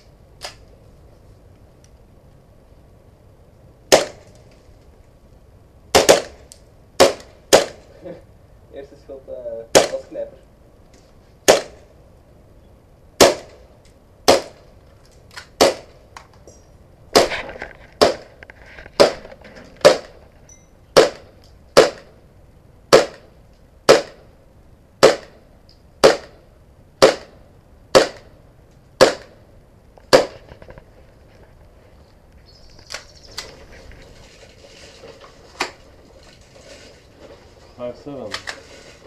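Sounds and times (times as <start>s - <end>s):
airsoft pistol shots: 3.9s - 4.3s, 5.9s - 7.8s, 9.7s - 10.1s, 11.4s - 11.9s, 13.2s - 13.6s, 14.2s - 14.6s, 15.4s - 16.0s, 18.0s - 18.3s, 19.0s - 19.2s, 19.8s - 20.2s, 20.9s - 22.2s, 22.9s - 24.3s, 25.0s - 25.4s, 26.0s - 26.4s, 27.0s - 28.3s, 29.0s - 29.4s, 30.1s - 30.4s.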